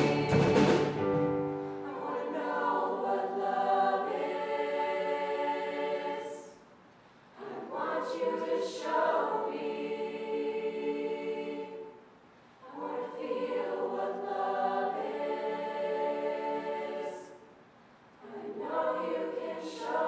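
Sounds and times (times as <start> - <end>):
choir singing held chords: 0.0 - 6.8, 7.4 - 17.6, 18.2 - 20.0.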